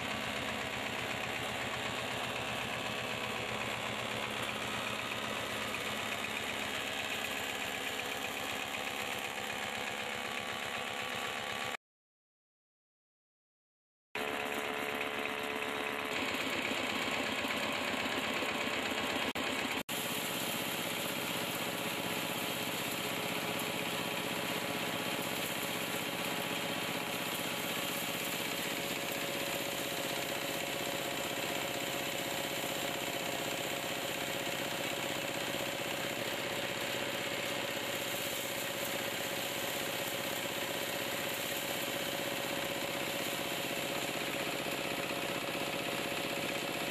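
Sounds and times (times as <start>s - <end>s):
tiller engine driving grain mill: 0.0s - 11.8s, 14.2s - 46.9s.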